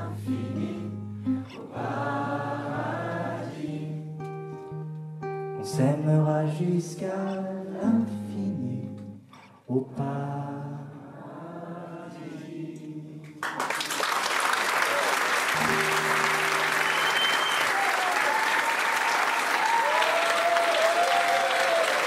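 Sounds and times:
acoustic guitar: 0:00.0 - 0:11.3, 0:15.5 - 0:17.6.

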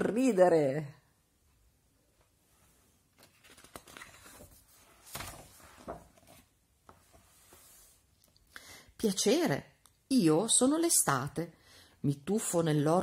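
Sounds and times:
paper rustling: 0:02.6 - 0:08.1.

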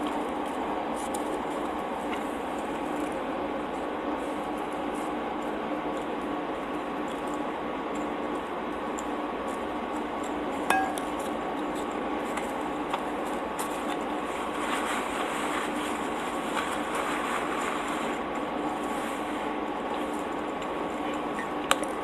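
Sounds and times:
chewing with wet clicks: 0:05.4 - 0:10.4
clink against ceramic plate: 0:10.7 - 0:11.1.

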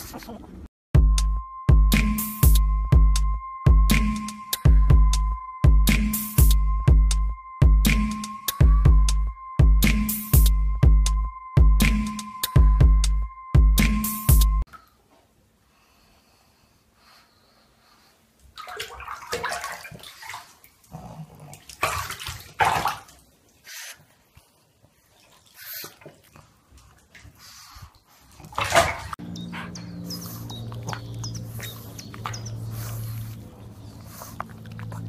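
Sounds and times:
water splashing in bathtub: 0:18.5 - 0:29.2.

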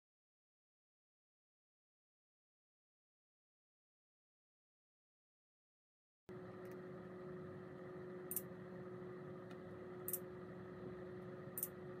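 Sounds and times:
faint steady hum: 0:06.3 - 0:12.0.

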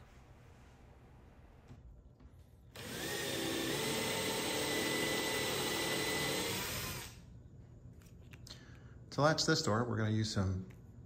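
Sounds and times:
electric drill running: 0:02.7 - 0:07.2.

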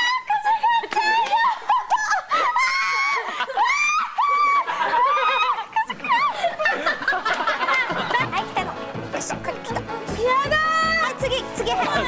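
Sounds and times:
women giggling and squealing: 0:00.5 - 0:08.4.

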